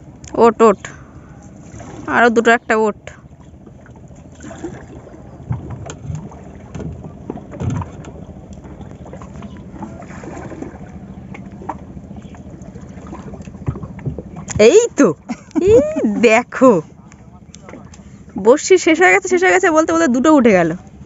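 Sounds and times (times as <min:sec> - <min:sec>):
water lapping at boat hull: 0:00.0 - 0:21.0
soft thumps of handling line: 0:03.3 - 0:16.0
light knocks on boat: 0:03.4 - 0:16.0, 0:17.1 - 0:18.5.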